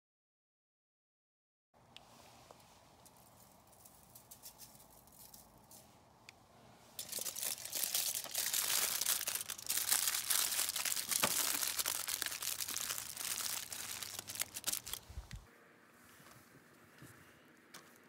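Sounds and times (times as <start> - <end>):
aluminium foil crinkling: 3.0 - 5.8, 7.0 - 15.5.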